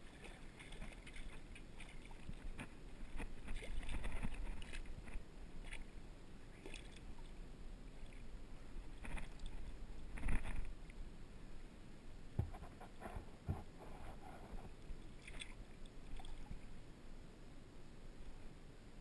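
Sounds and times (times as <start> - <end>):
wind rumble on microphone: 0.0 - 5.8
water splashing: 0.0 - 10.9, 15.0 - 16.8.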